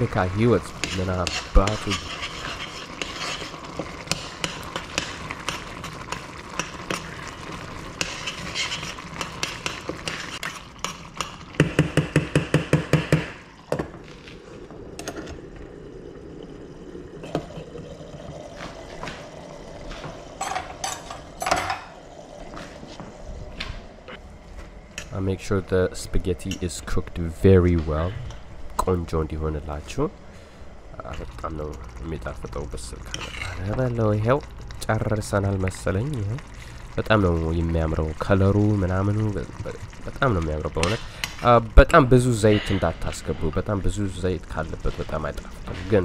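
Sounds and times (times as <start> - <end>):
metal spoon stirring in saucepan: 0.6 - 11.4, 33.0 - 33.7
spoon knocking on pan: 11.6 - 13.4.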